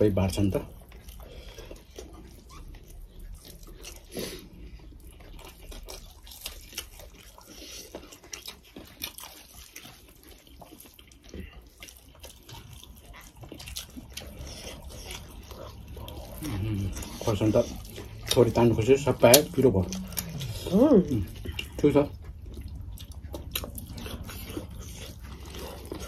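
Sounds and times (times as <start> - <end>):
wet chewing and lip smacks: 0.4 - 26.0
fingers squishing rice and curry: 0.6 - 20.6.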